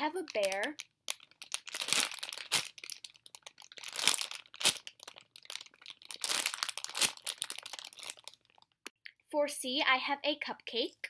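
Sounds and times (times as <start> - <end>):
plastic packaging crinkling: 0.0 - 8.8.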